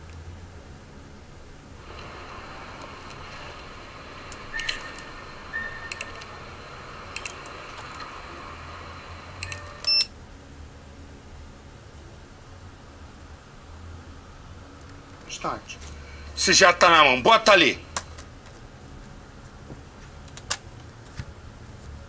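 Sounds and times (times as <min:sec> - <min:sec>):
faint steady hiss: 0:00.0 - 0:19.7
button clicks: 0:09.4 - 0:10.1
short electronic beep: 0:09.4 - 0:10.1.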